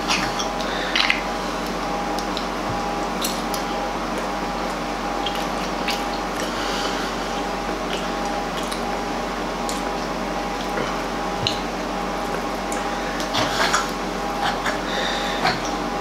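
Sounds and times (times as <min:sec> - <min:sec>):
faint hum: 0:00.0 - 0:16.0
person chewing with wet smacks: 0:00.0 - 0:16.0.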